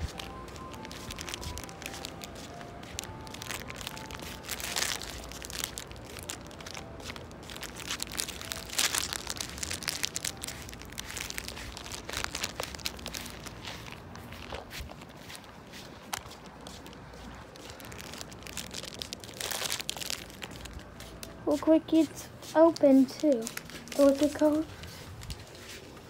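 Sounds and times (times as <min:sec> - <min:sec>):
ice cream truck jingle: 0:00.0 - 0:14.5
footsteps on pavement and grass: 0:00.0 - 0:26.0.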